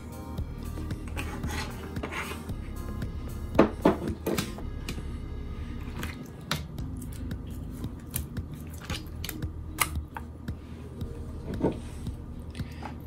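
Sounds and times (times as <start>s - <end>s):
low steady hum: 0.0s - 13.0s
wet squishes of fish in bowl: 7.0s - 10.0s.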